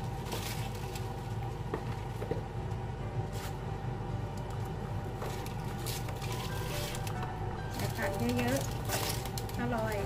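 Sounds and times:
steady low hum: 0.0 - 10.0
vegetables rustling and knocking: 5.2 - 10.0.

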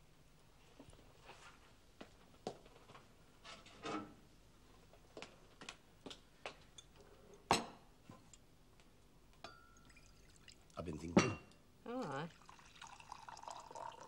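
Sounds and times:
crockery clinking on wooden table: 6.8 - 8.4, 11.2 - 11.6.

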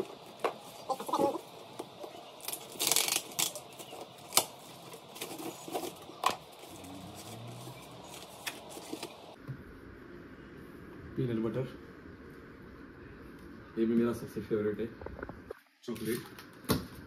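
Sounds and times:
tearing rustle: 2.4 - 9.4.

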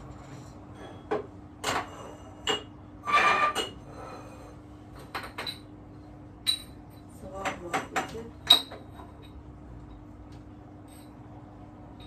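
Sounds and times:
glasses and dishes clinking: 0.7 - 3.8, 5.0 - 5.7, 6.4 - 9.4.

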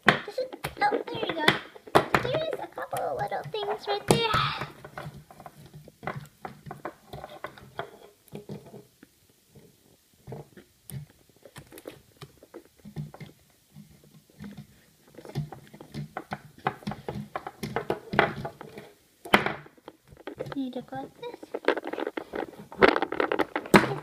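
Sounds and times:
soft rubbing: 19.9 - 24.0.

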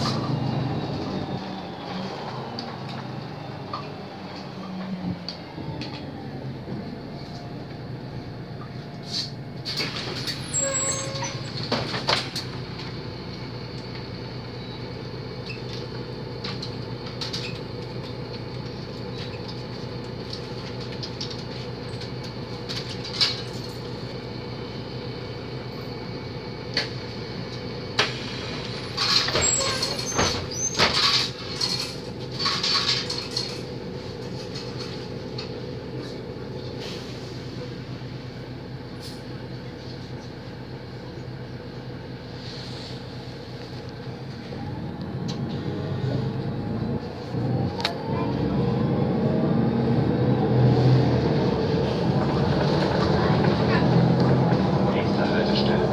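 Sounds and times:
bus engine hum: 0.0 - 55.9
bus body rattling: 8.6 - 14.7, 15.4 - 24.5, 26.8 - 38.0
clatter: 28.0 - 36.2.

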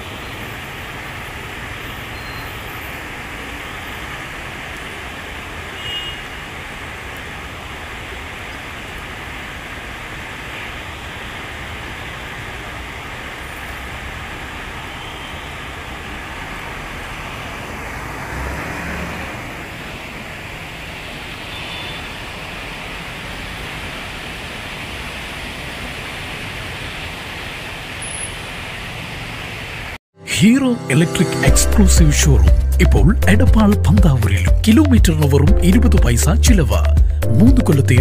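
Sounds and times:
tyres hissing on wet road: 0.0 - 30.0
bus passing: 0.0 - 31.6
car engines running: 15.6 - 21.6.

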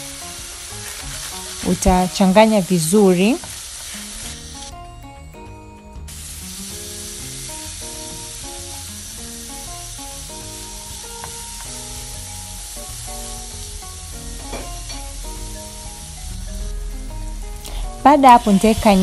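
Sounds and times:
spatula stirring in pan: 0.0 - 4.7
background music with held notes: 0.0 - 19.0
food sizzling in a frying pan: 0.0 - 19.0.

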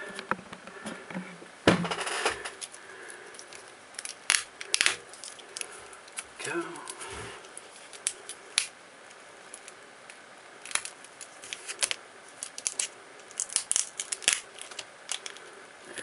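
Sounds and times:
adhesive tape peeling: 10.6 - 15.5.

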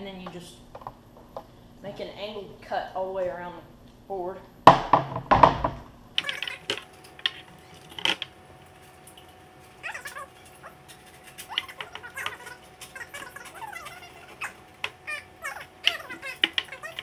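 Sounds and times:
knocks: 4.7 - 5.9.

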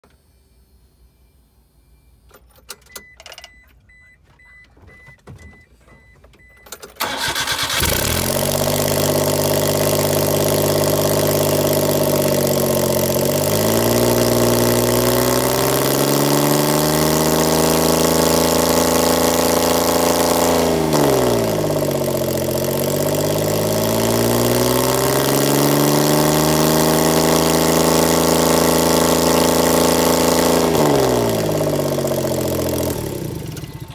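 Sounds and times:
repeating high beep: 0.3 - 6.8
engine cranking and starting: 6.0 - 12.4, 30.6 - 33.9
engine idling: 7.0 - 15.0, 18.7 - 33.9.

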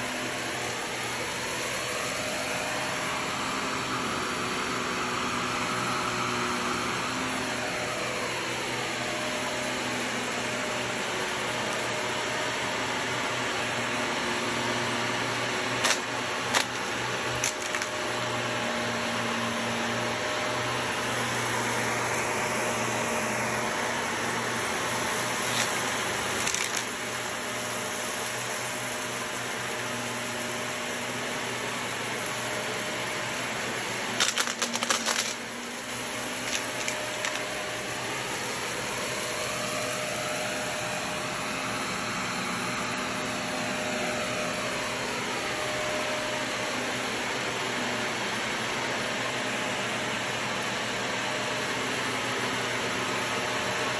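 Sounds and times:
vacuum cleaner running: 0.0 - 53.9
debris rattling in vacuum: 15.4 - 18.7, 19.4 - 46.6.

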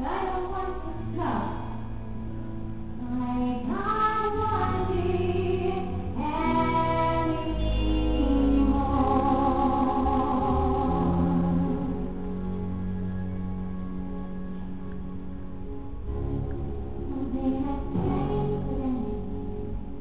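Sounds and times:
women singing: 3.0 - 12.0, 17.1 - 19.3
orchestra playing: 6.4 - 19.9.

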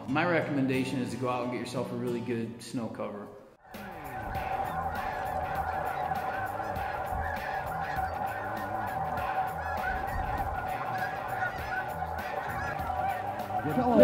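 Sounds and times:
flock of geese honking: 3.6 - 14.0.

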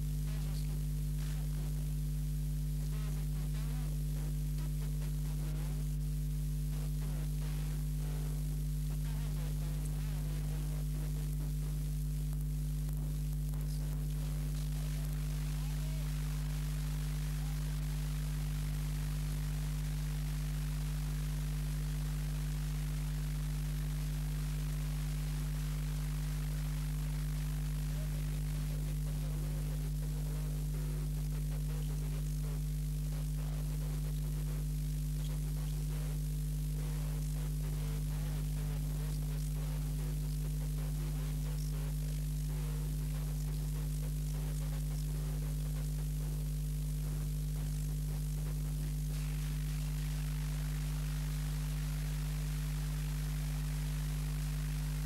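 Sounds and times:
faint hiss: 0.0 - 32.8, 48.4 - 55.0
mains hum: 0.0 - 55.0.

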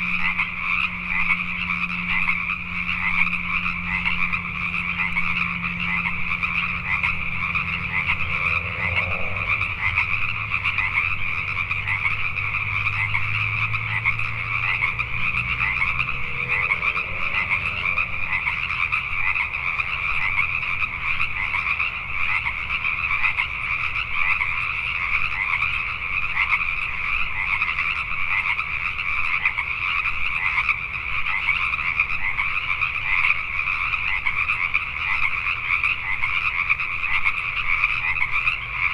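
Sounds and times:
faint low steady hum: 0.0 - 25.3
chorus of tree frogs calling: 0.0 - 38.9.

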